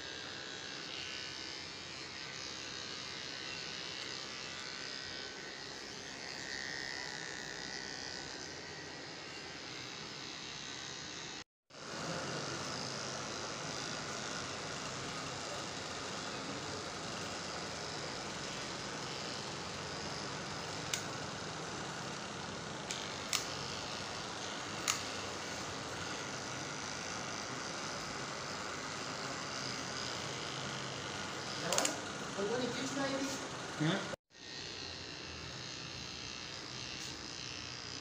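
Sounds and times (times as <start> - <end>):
electric pet clipper running: 0.0 - 38.0.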